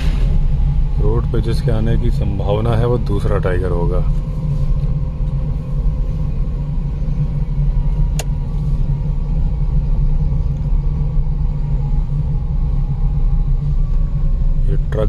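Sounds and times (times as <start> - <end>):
car engine and tyres rumbling: 0.0 - 15.0.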